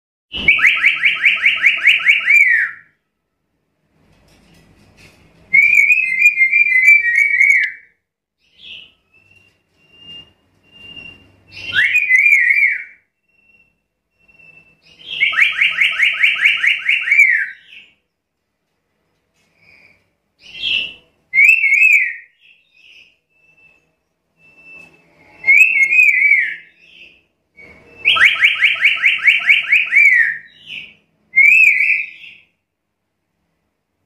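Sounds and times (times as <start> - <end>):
bird calling in rapid bursts: 0.3 - 2.9, 5.6 - 13.0, 14.3 - 18.0, 28.0 - 32.5.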